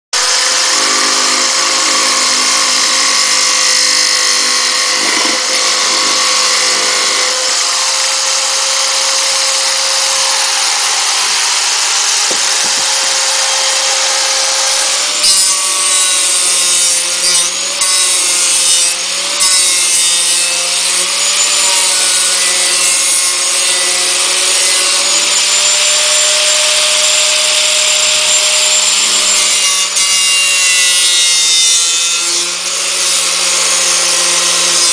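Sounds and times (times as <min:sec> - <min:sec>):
sanding disc rubbing wood: 0:00.2 - 0:24.2
power sander whine: 0:00.2 - 0:34.9.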